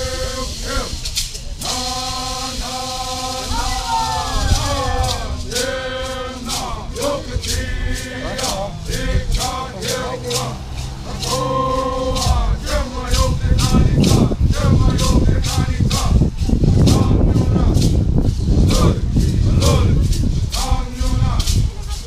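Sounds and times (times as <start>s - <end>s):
group of voices singing: 0.0s - 22.0s
hand rattle shaking: 0.0s - 22.0s
low rumble: 2.1s - 22.0s.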